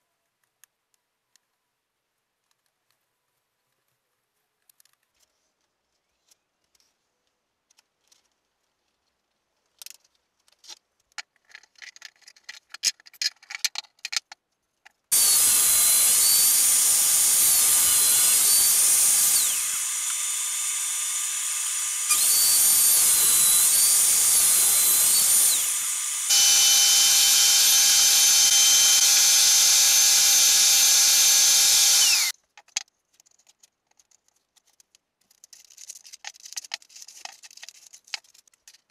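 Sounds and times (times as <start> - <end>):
table saw cutting: 15.1 - 32.3.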